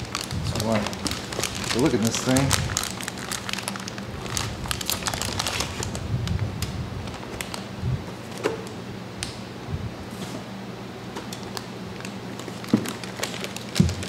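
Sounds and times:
plastic bag crinkling: 0.0 - 8.4, 11.3 - 14.0
steady low hum: 0.0 - 14.0.

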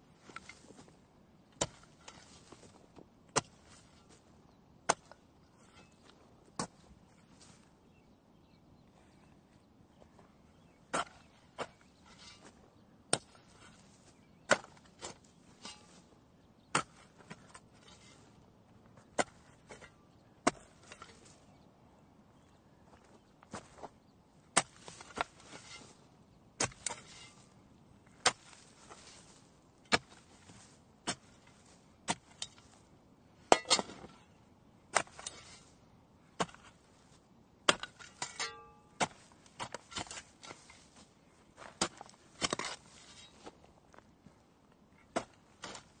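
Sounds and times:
gritty rustle of sand: 0.1 - 8.6, 9.2 - 21.7, 22.4 - 46.0
shovel crunching into sand: 0.2 - 1.0, 1.6 - 2.8, 3.4 - 4.3, 13.2 - 16.2, 24.5 - 35.8, 36.4 - 43.6, 45.1 - 46.0.

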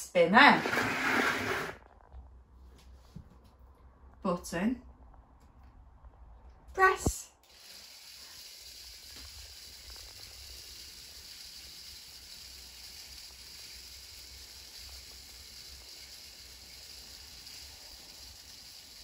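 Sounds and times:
spinner toy motor whirring: 0.5 - 1.8, 7.4 - 19.0.

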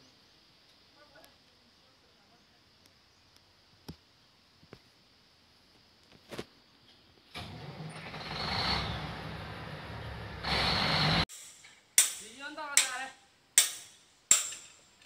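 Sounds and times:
diesel truck engine running: 7.4 - 11.2
loud hiss: 7.4 - 14.9.

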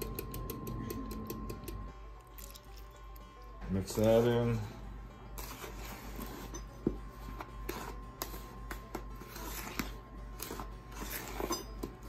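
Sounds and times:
quiet background music: 0.0 - 12.0
spatula scraping mixing bowl: 5.3 - 12.0.

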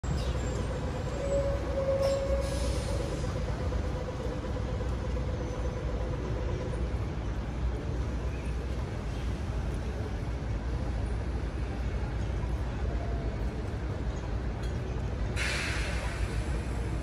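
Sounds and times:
vehicle low rumble: 0.0 - 17.0.

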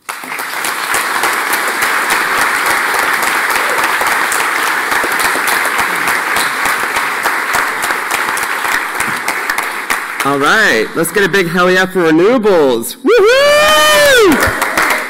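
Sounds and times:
audience applause: 0.0 - 11.3, 13.8 - 15.0.

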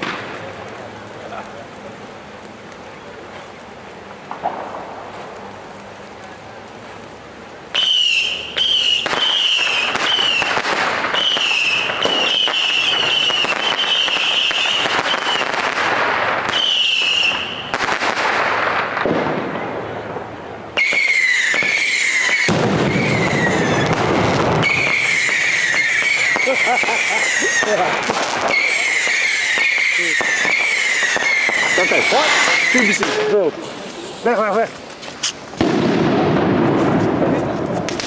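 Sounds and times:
firework fountain hissing: 0.0 - 38.0
high wavering whistle: 7.8 - 10.5.

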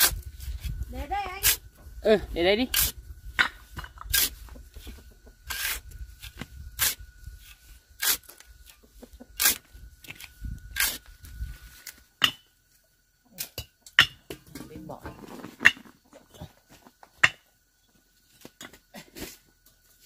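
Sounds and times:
short scraping strokes: 3.6 - 12.0.

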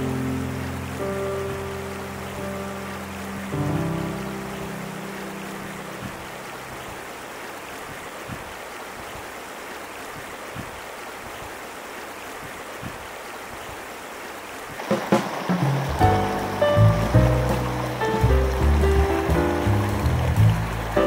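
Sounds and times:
river water rushing over cobbles: 0.0 - 21.0
loud sharp sounds: 14.8 - 19.2.

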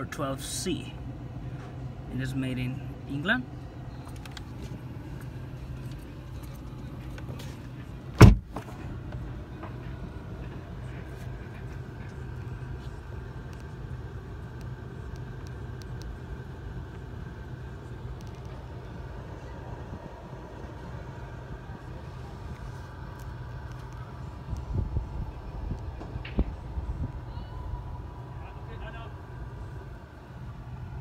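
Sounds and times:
steady low hum: 0.0 - 31.0
car door slamming: 8.1 - 8.8.

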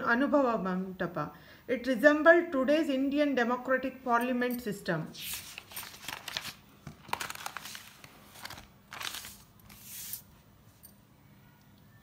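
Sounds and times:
notebook pages rustling: 5.2 - 10.3.

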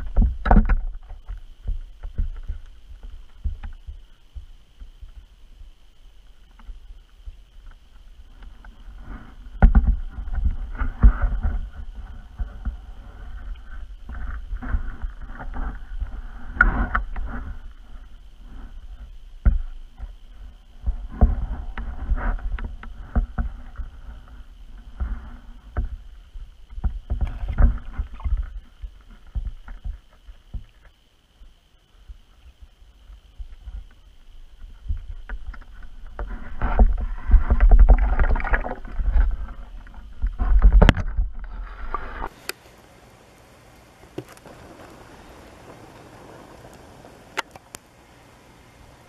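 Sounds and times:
muffled water sloshing: 0.0 - 31.0, 31.6 - 42.5
faint high whine: 0.0 - 49.0.

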